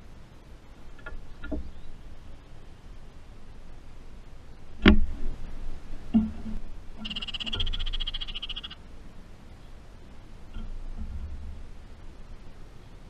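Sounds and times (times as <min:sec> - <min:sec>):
bird rattling chatter: 0:07.0 - 0:08.8.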